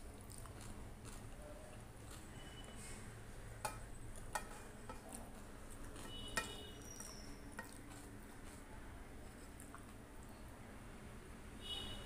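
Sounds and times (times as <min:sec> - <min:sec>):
steel bowl clinking against plate: 0:03.6 - 0:05.1.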